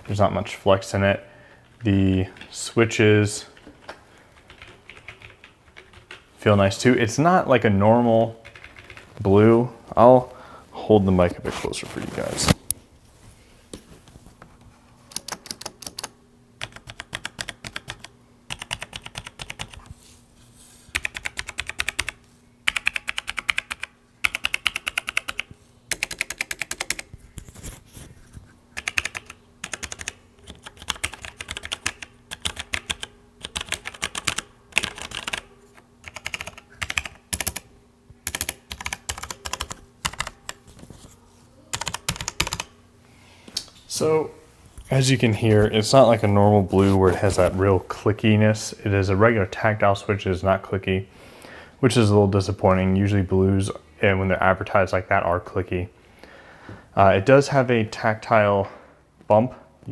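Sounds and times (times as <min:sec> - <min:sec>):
typing on mechanical keyboard: 0:04.3 - 0:06.3, 0:08.4 - 0:09.1, 0:15.1 - 0:19.8, 0:20.9 - 0:27.1, 0:28.8 - 0:37.6, 0:38.2 - 0:40.6, 0:41.7 - 0:42.7.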